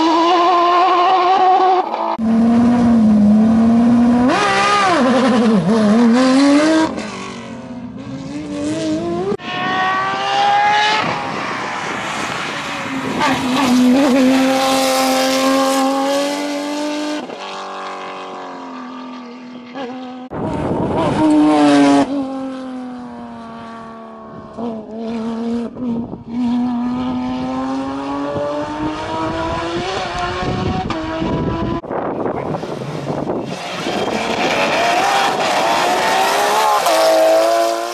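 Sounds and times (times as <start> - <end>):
rally car engine revving: 0.0 - 37.9
car passing by: 9.7 - 16.3.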